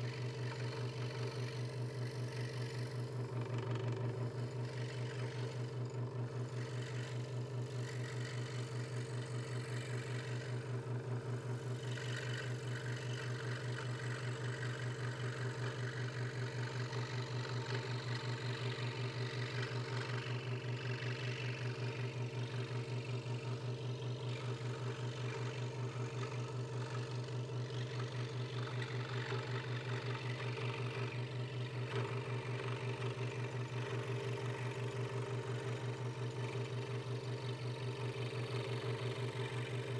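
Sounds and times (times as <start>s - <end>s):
scroll saw running: 0.0s - 39.9s.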